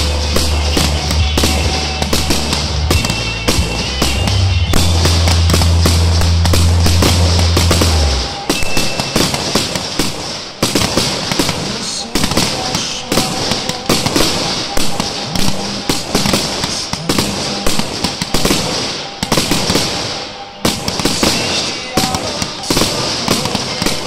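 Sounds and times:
loud low drone: 0.0 - 9.5
fireworks bangs and crackling: 0.0 - 24.0.

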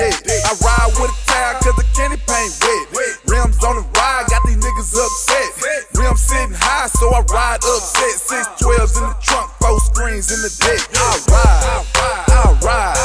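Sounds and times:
hip hop music with rapping: 0.0 - 13.0.

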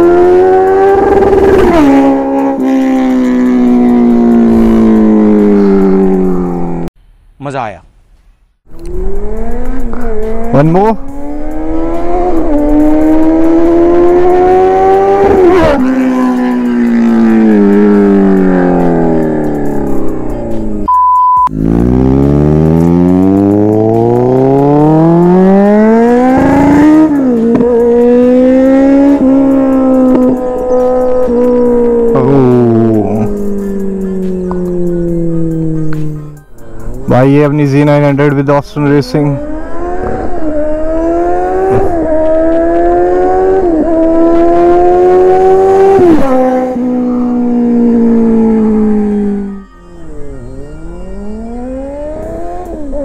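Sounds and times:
motorcycle engine accelerating hard: 0.0 - 6.9, 8.7 - 20.9, 21.5 - 37.0, 39.0 - 53.0.

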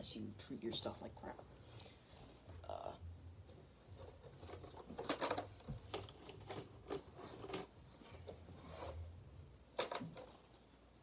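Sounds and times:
plastic parts clicking and knocking: 4.3 - 8.4, 9.8 - 10.6.

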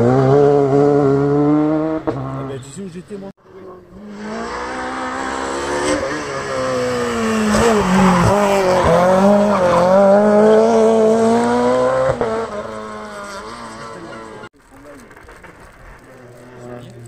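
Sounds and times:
rally car engine revving: 0.0 - 17.0
exhaust pops under braking: 14.6 - 17.0.

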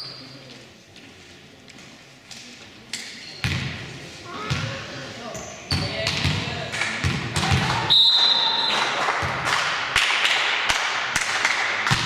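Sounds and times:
voices echoing in hall: 0.0 - 12.0
basketball bouncing on gym court: 3.4 - 3.8, 4.4 - 4.8, 5.7 - 7.9, 9.2 - 9.6.

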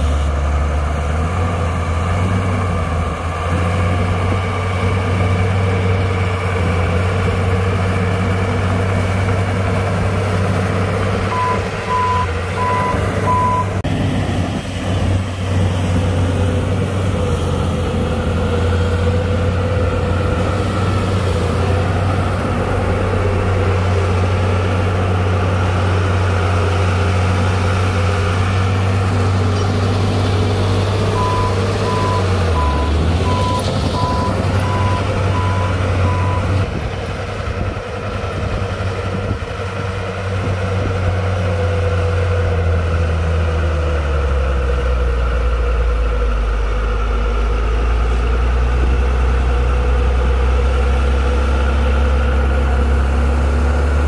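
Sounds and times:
heavy diesel machine running: 0.0 - 54.0
reversing alarm beeping: 11.3 - 13.8, 31.1 - 36.5.

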